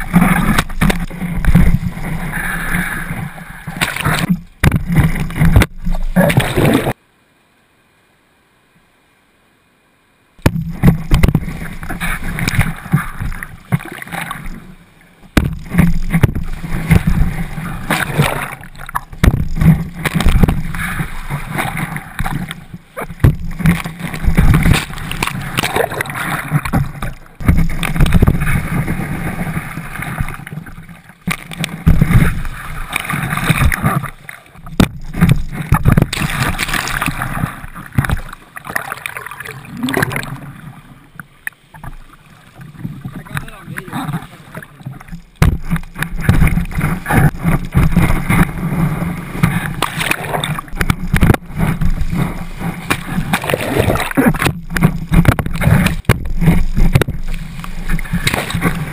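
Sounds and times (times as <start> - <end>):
beach surf splashing: 15.5 - 41.0, 42.0 - 58.9.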